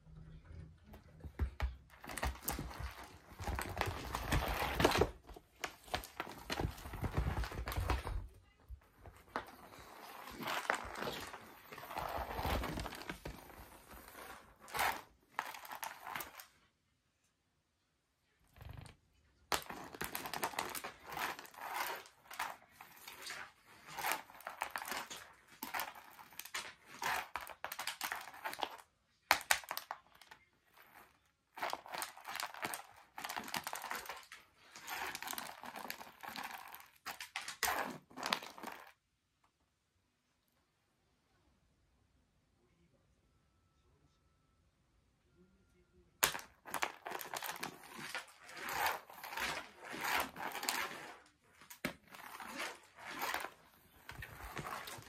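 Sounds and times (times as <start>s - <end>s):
wand toy rustling on mats: 1.3s - 16.6s, 19.5s - 38.9s, 46.2s - 55.0s.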